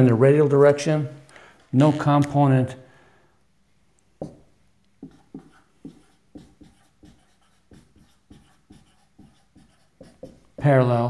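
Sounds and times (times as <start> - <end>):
marker writing on whiteboard: 4.2 - 11.0.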